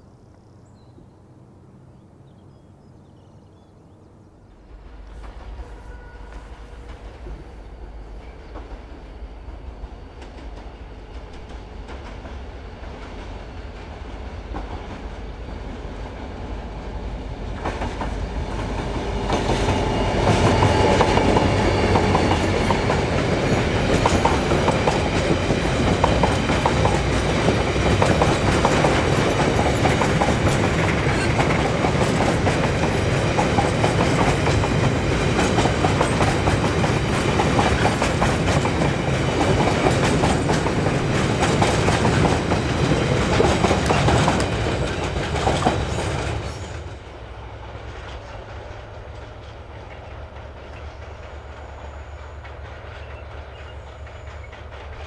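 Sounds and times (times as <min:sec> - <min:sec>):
diesel locomotive passing: 0:00.0 - 0:55.0
wagon wheels clickety-clack: 0:23.7 - 0:46.5.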